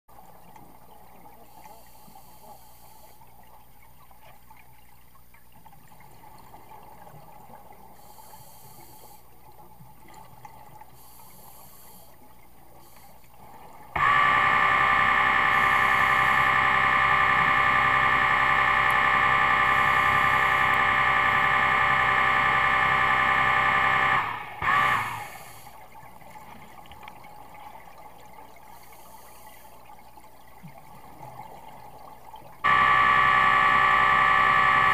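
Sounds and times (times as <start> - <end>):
underwater bubbling: 0.1 - 34.9
loud steady buzz: 14.0 - 25.8, 32.6 - 34.9.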